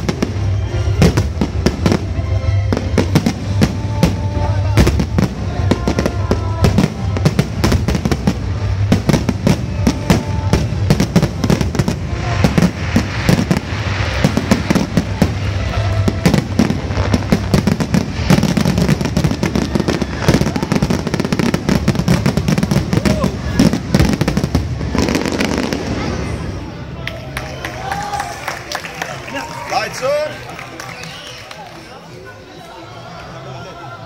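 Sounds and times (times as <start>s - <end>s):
fireworks bursting: 0.0s - 27.0s
fireworks crackling: 0.0s - 32.4s.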